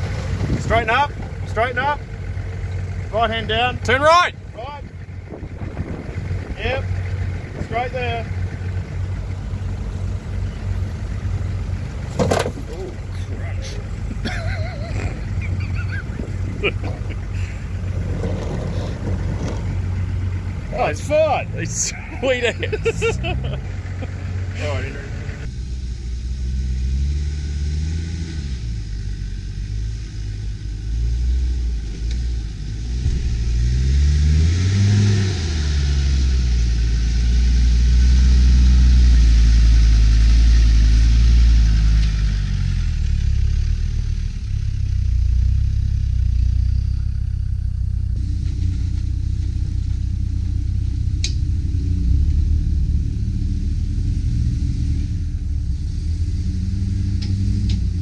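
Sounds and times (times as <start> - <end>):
vehicle engine revving under load: 0.0 - 58.0.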